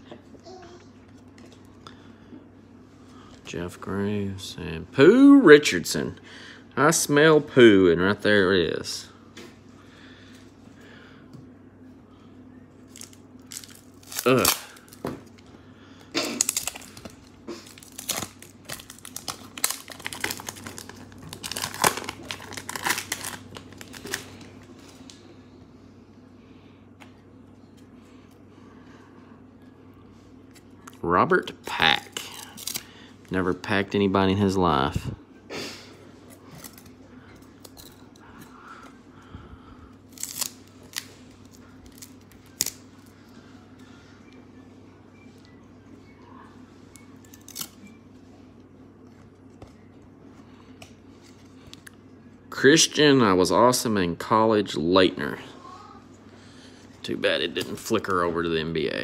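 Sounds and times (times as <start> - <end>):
wrapper crinkling and tearing: 12.9 - 15.0, 16.4 - 24.6, 32.1 - 32.9, 40.1 - 43.1, 47.3 - 47.8.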